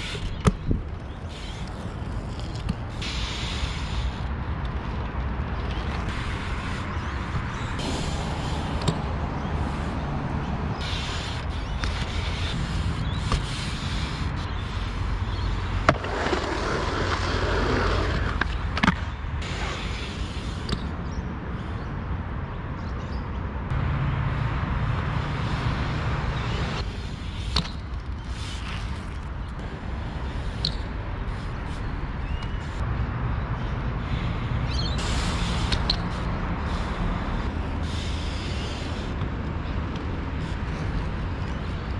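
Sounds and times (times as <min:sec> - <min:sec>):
bike tyres rolling on concrete: 0:00.0 - 0:20.9, 0:24.9 - 0:32.8, 0:33.5 - 0:41.9.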